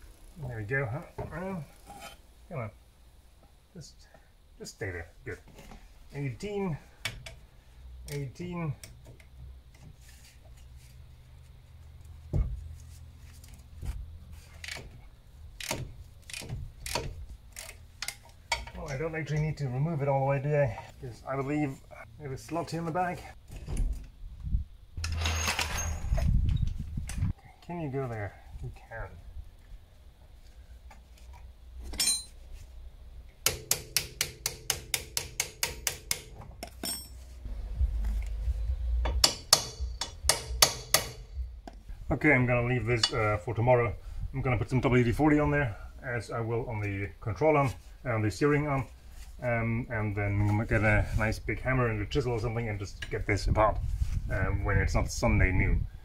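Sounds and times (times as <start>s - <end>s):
metal tools clinking on metal parts: 25.0s - 26.2s, 31.9s - 32.4s, 36.6s - 37.3s
hammer striking steel: 39.0s - 41.4s.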